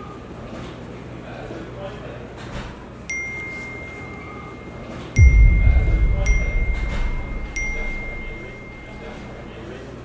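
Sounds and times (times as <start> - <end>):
deep low boom: 5.2 - 9.5.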